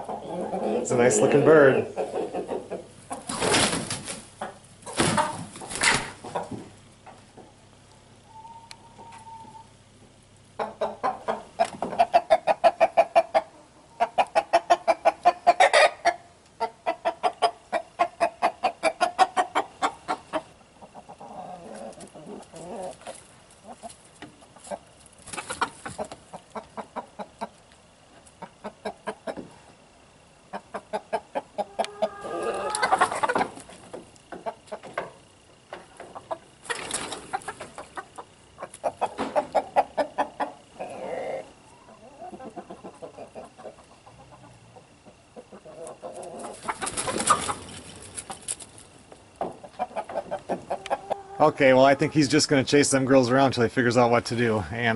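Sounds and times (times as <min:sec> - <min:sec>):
hens clucking: 0:00.0 - 0:53.5.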